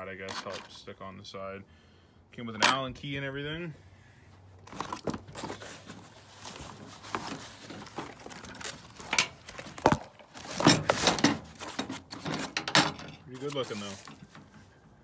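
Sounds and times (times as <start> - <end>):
packaging crinkling and rustling: 4.6 - 12.6, 13.4 - 14.3
scrapes and knocks: 4.7 - 14.6.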